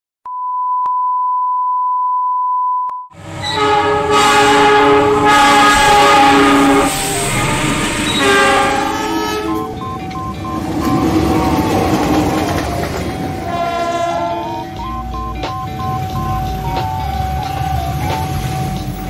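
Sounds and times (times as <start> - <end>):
locomotive horn: 3.2 - 12.2, 13.0 - 14.9
passing train rumble: 3.2 - 19.0
steady high beep: 9.3 - 12.0, 14.4 - 18.2.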